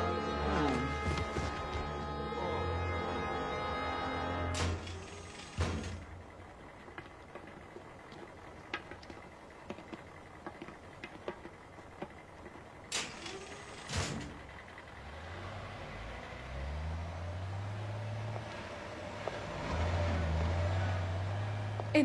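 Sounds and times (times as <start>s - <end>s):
vehicle engine rumbling: 0.0s - 22.0s
light cartoon footsteps: 6.6s - 12.9s.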